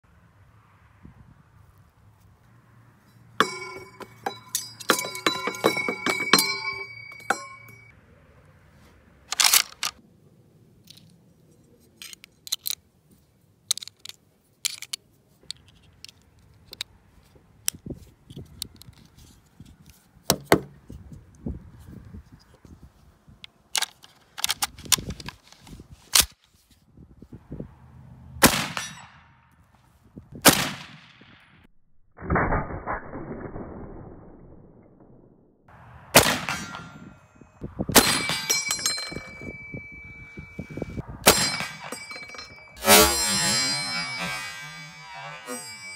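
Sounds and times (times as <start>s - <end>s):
ringing metallic clinks: 3.0s - 8.0s, 36.5s - 45.9s
sharp metal clacks: 3.4s - 7.9s, 38.0s - 45.9s
cartridge clicks and snaps: 12.0s - 12.8s.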